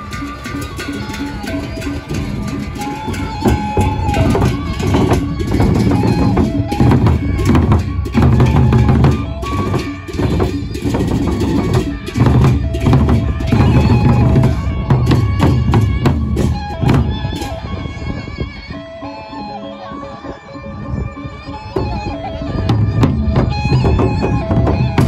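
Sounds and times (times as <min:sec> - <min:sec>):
barrel drums beaten: 0:00.0 - 0:17.5, 0:22.7 - 0:25.0.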